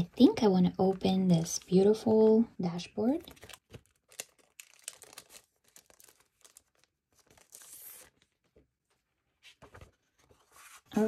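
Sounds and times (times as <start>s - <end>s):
plastic sleeve crinkling: 3.2s - 8.5s.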